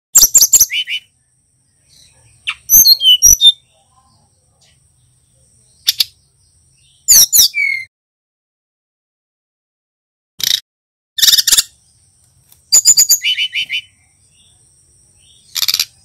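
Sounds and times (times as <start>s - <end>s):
bird whistle: 0.2s - 1.1s, 2.5s - 3.6s, 7.1s - 7.9s, 12.7s - 14.0s
high sweeping bird chirps: 0.2s - 4.8s, 5.6s - 7.9s, 11.2s - 12.0s, 12.7s - 14.6s.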